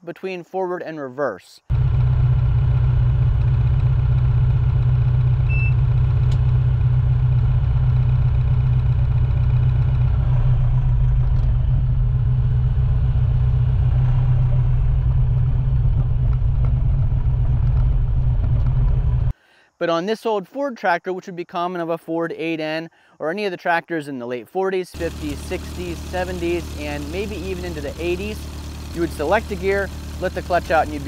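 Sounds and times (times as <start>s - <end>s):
tractor diesel engine from cab: 1.7s - 19.4s, 25.0s - 31.0s
short faint beep: 5.5s - 5.8s.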